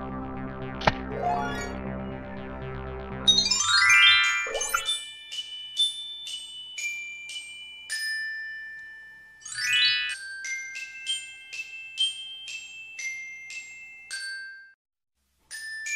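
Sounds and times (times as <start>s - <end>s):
glockenspiel jingle: 3.3s - 14.8s, 15.4s - 15.9s.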